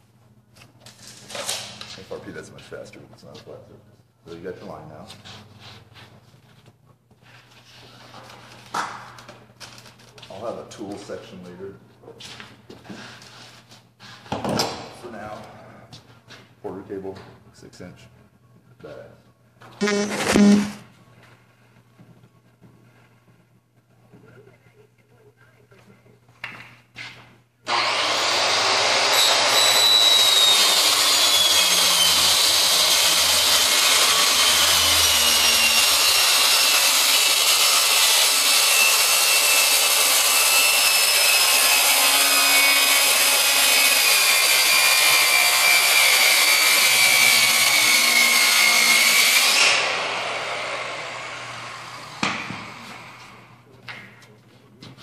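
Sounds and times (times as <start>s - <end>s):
circular saw cutting: 27.7s - 53.4s
saw blade winding down: 27.7s - 53.4s.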